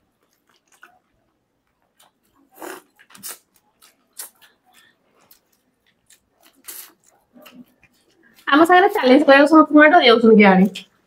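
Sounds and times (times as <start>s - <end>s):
lip smacks and chewing: 0.0s - 8.5s.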